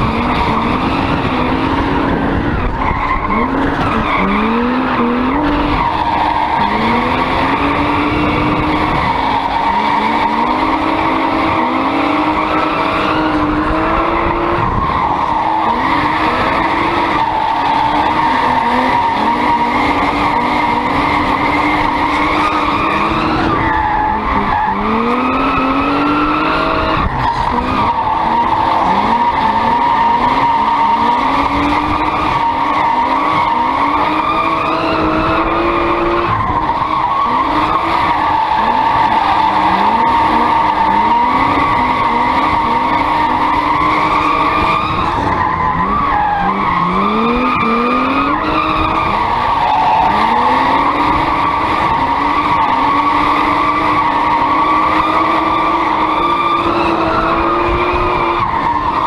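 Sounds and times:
car engine revving: 0.0s - 59.0s
tyres squealing: 2.7s - 59.0s.

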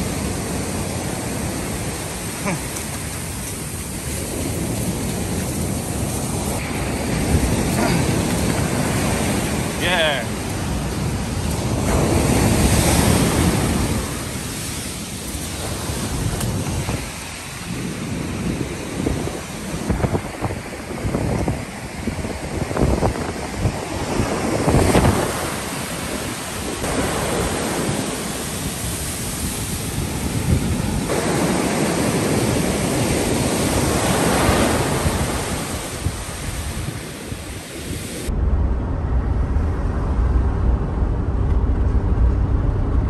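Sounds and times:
ocean surf breaking: 0.0s - 41.4s
wind buffeting microphone: 0.0s - 43.0s
car cabin rumble: 38.4s - 43.0s.

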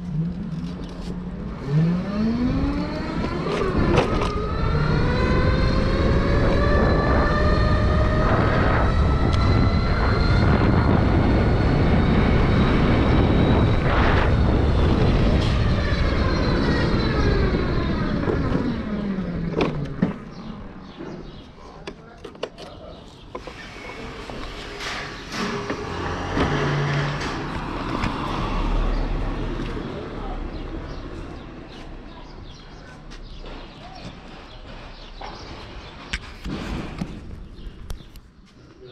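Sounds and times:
electric scooter motor whining: 0.1s - 20.9s
steady low rush: 4.4s - 19.5s.

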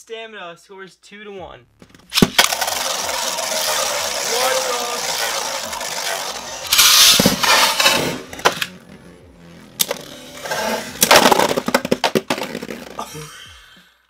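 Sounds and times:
plastic tops clacking: 1.8s - 8.7s, 11.0s - 13.0s
spinning top whirring: 2.0s - 8.9s, 9.8s - 13.0s.

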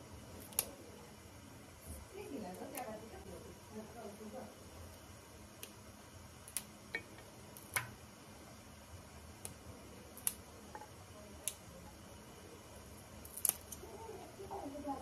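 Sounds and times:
vegetable stems snapping: 0.4s - 0.7s, 9.4s - 10.4s, 13.2s - 13.8s.

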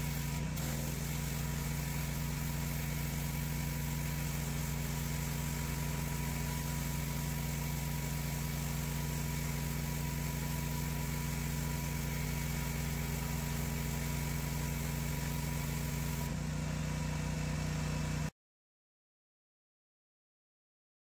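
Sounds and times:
water jet hissing on concrete: 0.0s - 16.3s
pressure washer motor humming: 0.0s - 18.3s.

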